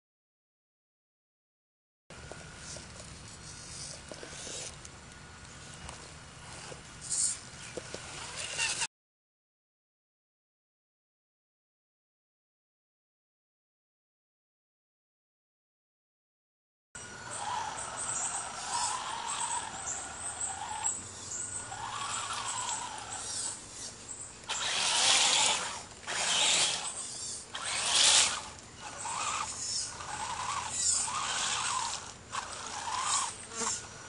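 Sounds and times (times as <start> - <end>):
electric motor whining: 17.0 - 34.0
tyres churning through mud: 17.2 - 34.0.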